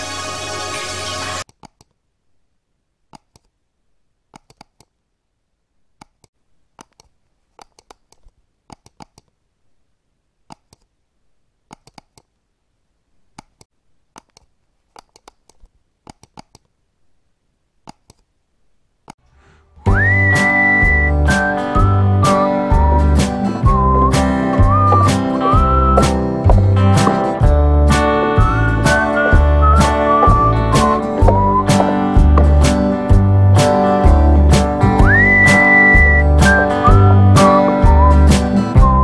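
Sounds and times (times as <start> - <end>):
faint keyboard typing clicks: 4.3 - 4.9, 11.7 - 12.3, 13.4 - 16.7.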